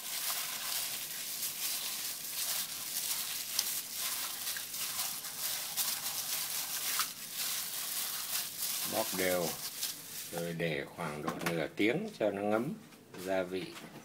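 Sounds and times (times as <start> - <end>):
wet squelching of fish: 0.0 - 10.4
plastic glove crinkling: 0.0 - 10.9.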